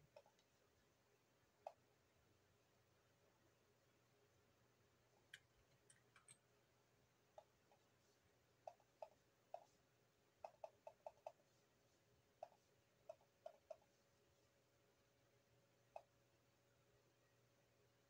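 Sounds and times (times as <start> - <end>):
computer mouse clicks: 10.4 - 11.4, 12.4 - 13.9.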